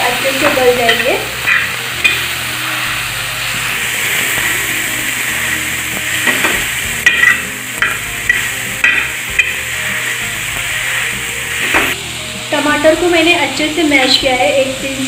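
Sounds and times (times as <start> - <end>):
vegetables sizzling in butter: 0.0 - 15.0
masher knocking and scraping griddle: 0.4 - 2.3, 3.8 - 12.0.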